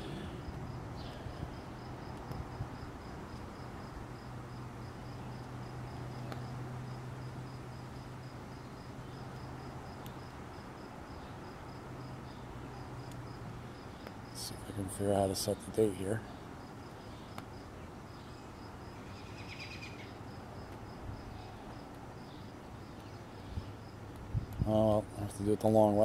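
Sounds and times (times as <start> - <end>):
cricket chirping: 0.0 - 14.7, 16.2 - 25.2.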